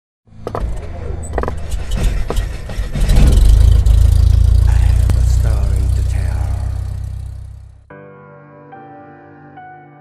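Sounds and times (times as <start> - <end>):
deep rumble: 0.8 - 7.9
sharp crackling hits: 1.5 - 7.7.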